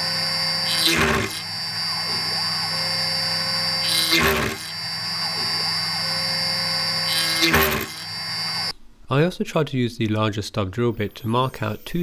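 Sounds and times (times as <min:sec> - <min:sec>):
spindle high whine: 0:00.0 - 0:08.8
drill bit pecking into metal: 0:00.6 - 0:01.9, 0:03.8 - 0:04.8.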